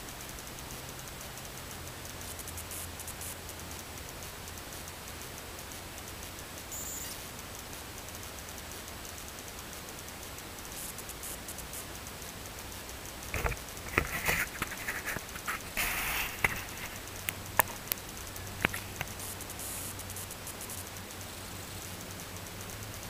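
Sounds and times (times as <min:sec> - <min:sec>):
sharp clicks and knocks: 0:10.0 - 0:21.0
camera handling rustling and scraping: 0:13.4 - 0:17.0.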